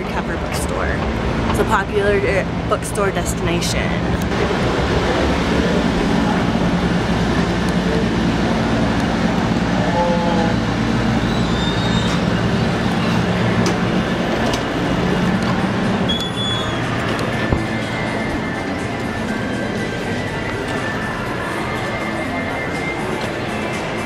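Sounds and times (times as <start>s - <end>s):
vehicle engine idling: 3.7s - 24.0s
high squeaks: 11.2s - 12.4s.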